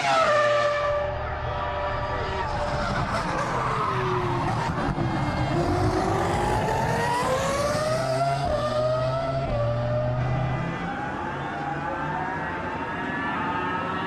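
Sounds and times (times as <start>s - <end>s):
racing car engine accelerating: 0.0s - 11.7s.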